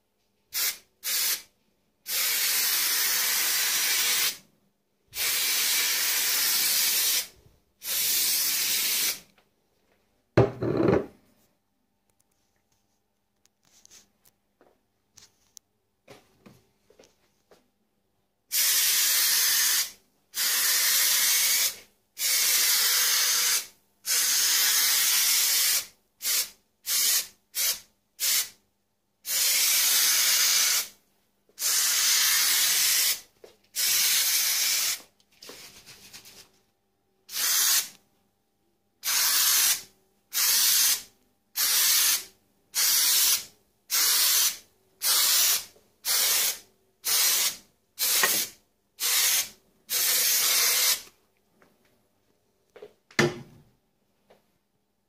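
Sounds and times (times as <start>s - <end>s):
spray adhesive hissing: 0.6s - 1.5s, 2.1s - 4.4s, 5.2s - 9.2s, 18.5s - 28.6s, 29.3s - 31.0s, 31.6s - 33.2s, 33.8s - 35.0s, 37.3s - 37.9s, 39.0s - 51.0s.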